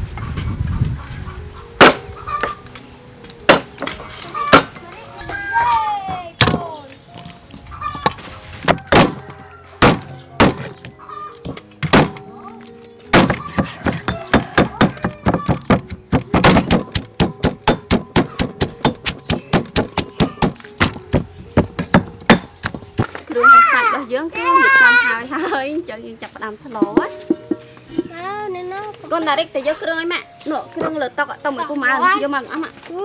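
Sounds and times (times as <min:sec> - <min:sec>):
faint background music: 0:00.0 - 0:33.0
pestle pounding in stone mortar: 0:01.8 - 0:02.0, 0:03.5 - 0:03.9, 0:08.0 - 0:10.7, 0:11.8 - 0:12.3, 0:13.1 - 0:23.1
knife chopping meat on board: 0:09.8 - 0:10.7, 0:13.1 - 0:22.9.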